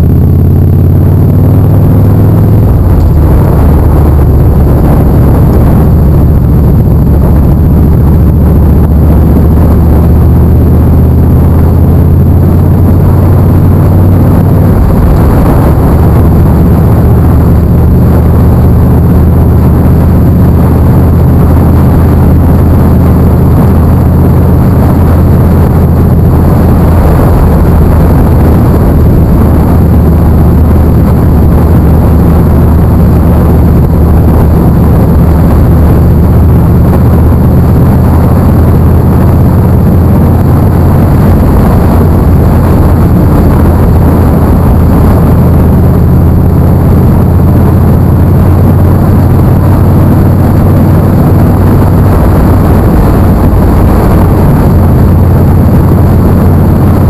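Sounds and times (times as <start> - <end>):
motorcycle engine running: 0.0 - 57.0
wind rush on microphone: 0.0 - 57.0.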